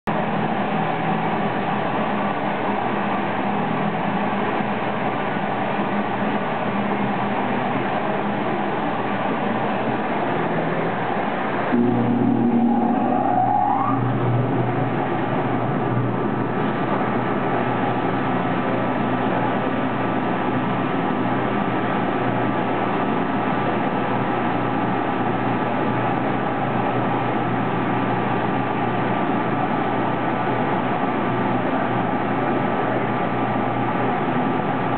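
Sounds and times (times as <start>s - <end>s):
pump humming and rushing: 0.1s - 34.9s
faint high whine: 11.6s - 20.9s.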